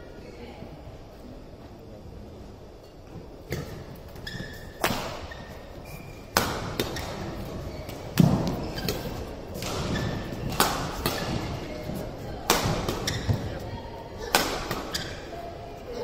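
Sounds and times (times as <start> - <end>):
court shoes squeaking: 3.0 - 16.0
rackets hitting shuttlecock: 3.5 - 5.5, 6.2 - 13.6, 14.2 - 15.3.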